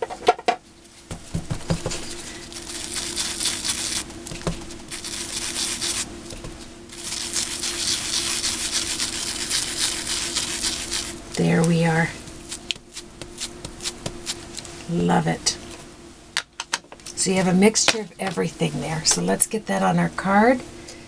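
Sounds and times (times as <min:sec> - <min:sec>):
foam tool rubbing on card: 0:02.1 - 0:04.1, 0:04.9 - 0:06.1, 0:06.9 - 0:11.2, 0:12.5 - 0:14.4.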